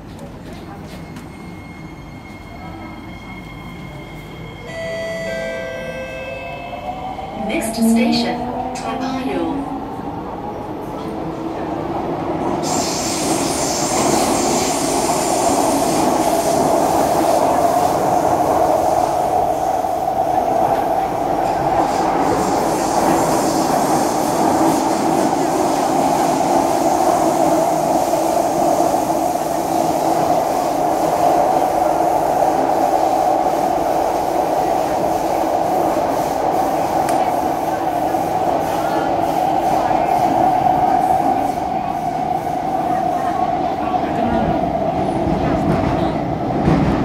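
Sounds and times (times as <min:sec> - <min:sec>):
metro train whine and rumble: 0:00.0 - 0:47.0.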